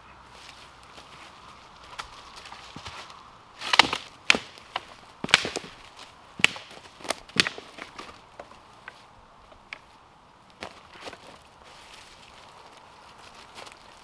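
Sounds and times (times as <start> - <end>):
sharp knocks and cracks: 3.6 - 8.5.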